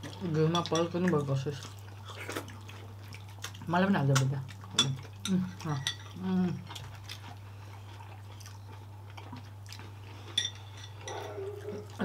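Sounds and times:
steady low hum: 4.3 - 12.0.

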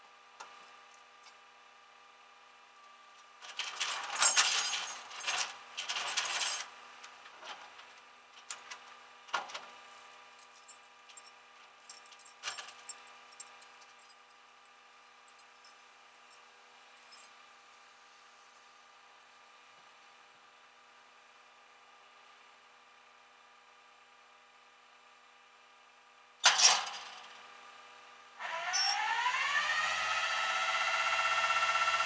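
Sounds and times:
tow chain rattling and clinking: 3.4 - 6.7, 10.4 - 14.4.

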